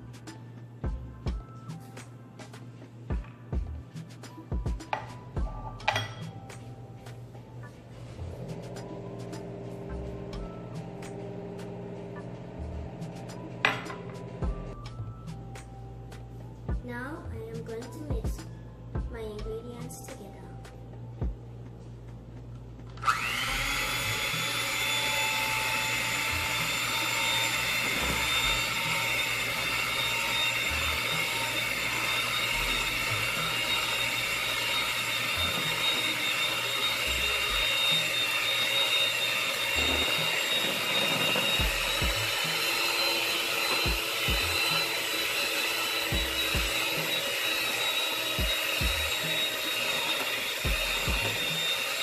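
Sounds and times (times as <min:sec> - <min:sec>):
hand mixer motor whining: 0:23.0 - 0:52.0.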